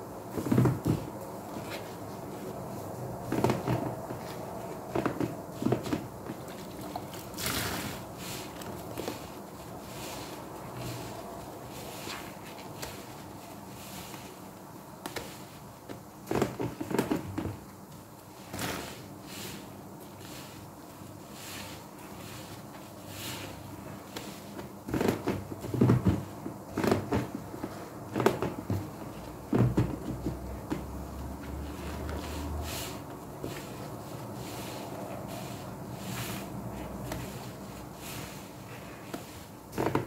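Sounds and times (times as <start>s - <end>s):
wet sponge squelching and splashing: 6.4s - 13.2s, 31.5s - 39.5s.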